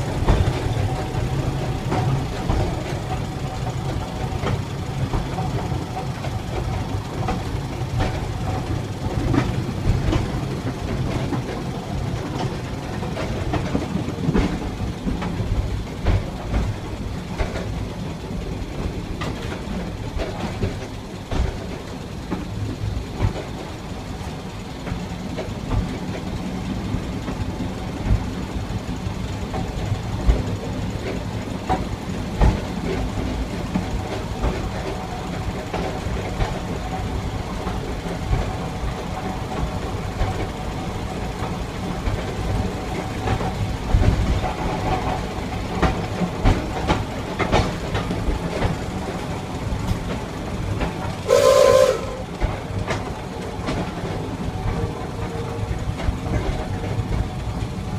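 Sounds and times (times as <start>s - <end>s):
railcar engine running: 0.0s - 57.9s
wheels clicking over rail joints: 0.0s - 57.9s
railcar horn blast: 51.2s - 52.3s.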